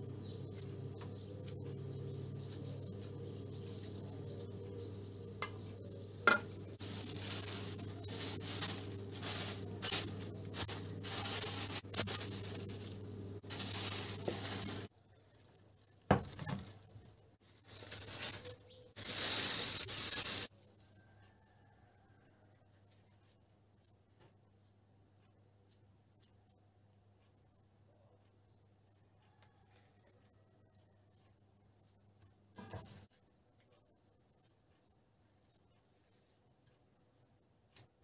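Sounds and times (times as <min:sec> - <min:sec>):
cling film crinkling: 0:06.8 - 0:20.5.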